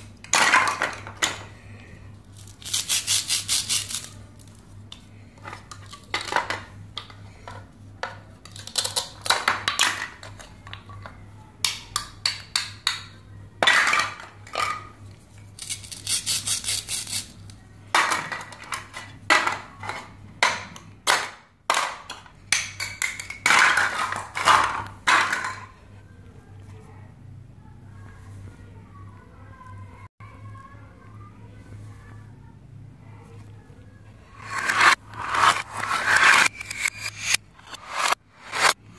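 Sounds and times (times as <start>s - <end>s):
plastic toy pieces clacking: 2.4s - 4.1s, 8.4s - 10.9s.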